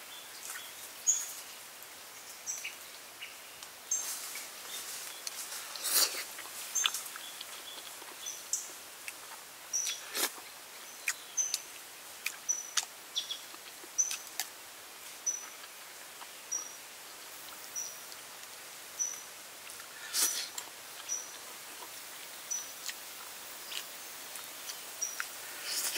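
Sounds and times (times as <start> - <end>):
chewing clicks and smacks: 12.2 - 12.9.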